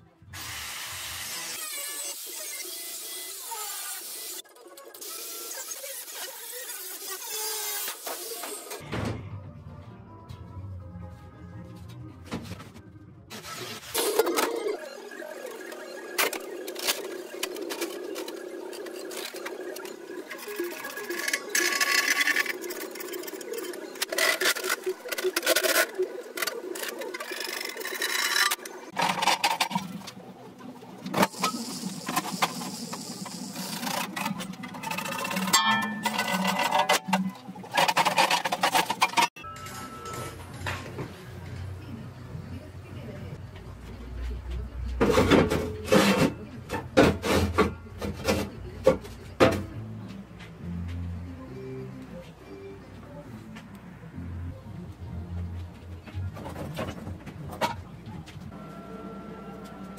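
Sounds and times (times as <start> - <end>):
metal clanks: 34.9 - 39.8.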